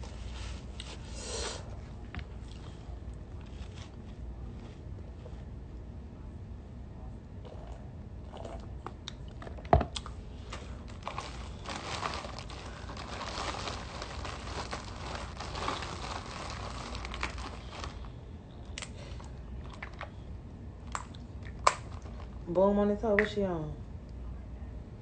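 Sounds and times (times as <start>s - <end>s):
seafood crackling as handled: 10.6s - 18.1s.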